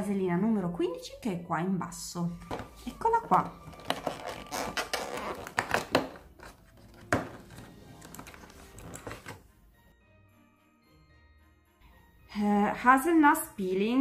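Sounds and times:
cardboard packaging crackling: 3.5s - 9.4s
faint music with bell tones: 9.7s - 14.0s.

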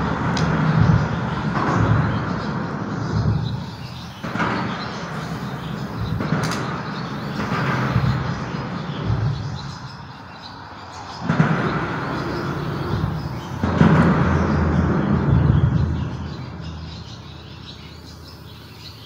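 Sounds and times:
highway traffic rumble: 0.0s - 19.0s
sharp clack: 0.3s - 10.0s.

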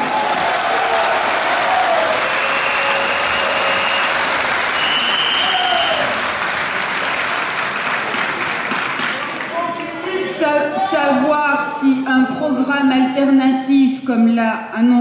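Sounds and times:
audience applause: 0.0s - 10.4s.

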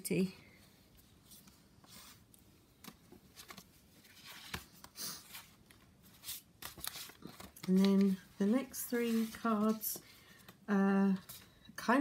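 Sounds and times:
paper cards rustling: 1.3s - 10.6s.

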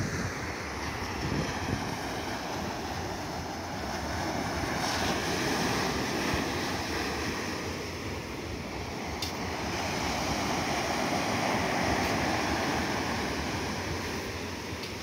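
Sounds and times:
small waves washing onto sand: 0.0s - 15.0s.

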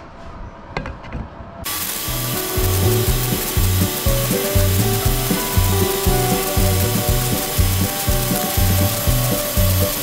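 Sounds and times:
music with driving bass beat: 2.1s - 10.0s.

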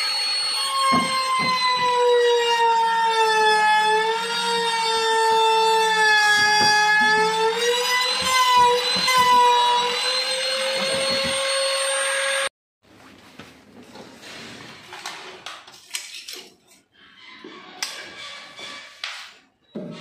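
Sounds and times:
electric router whining: 0.0s - 12.5s.

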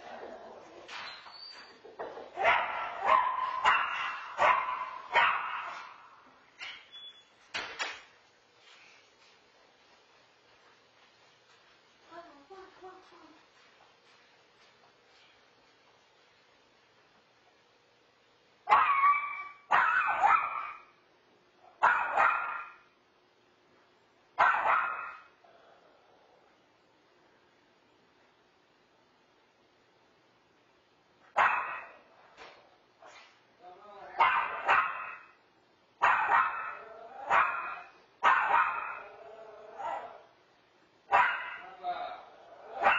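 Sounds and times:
dog barking: 2.4s - 6.1s, 18.7s - 20.9s, 21.8s - 22.8s, 24.4s - 25.3s, 31.4s - 32.0s, 34.2s - 35.4s, 36.0s - 39.1s, 41.1s - 41.8s.

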